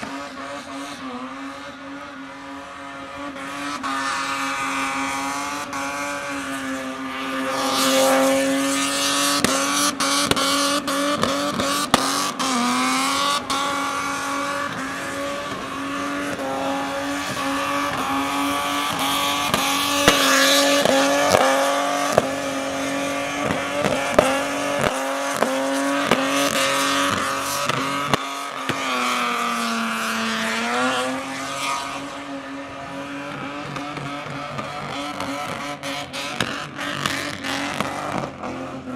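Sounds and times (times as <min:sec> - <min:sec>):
car engine at high revs: 0:00.0 - 0:38.9
engine sharp cracks: 0:18.8 - 0:22.3.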